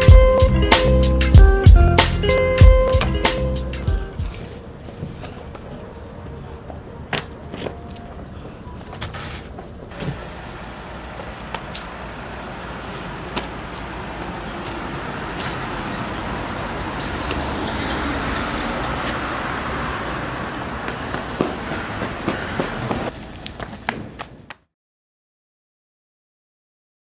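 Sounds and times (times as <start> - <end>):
footfalls and landing thuds on paving: 2.6 - 5.8, 6.7 - 10.2, 12.8 - 13.8, 14.6 - 15.6, 20.8 - 24.6
vehicle passing by: 9.9 - 23.2.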